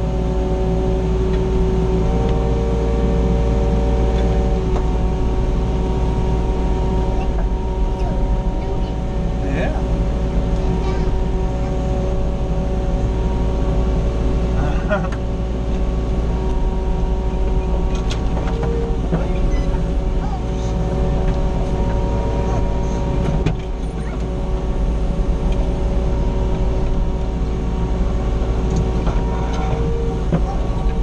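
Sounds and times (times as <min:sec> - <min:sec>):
diesel engine humming and whining: 0:00.0 - 0:31.0.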